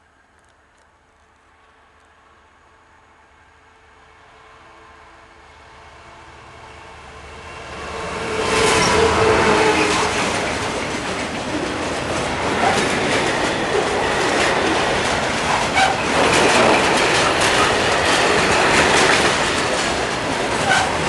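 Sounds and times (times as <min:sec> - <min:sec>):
diesel locomotive passing: 0:00.1 - 0:21.0
freight wagons clattering on rails: 0:09.7 - 0:21.0.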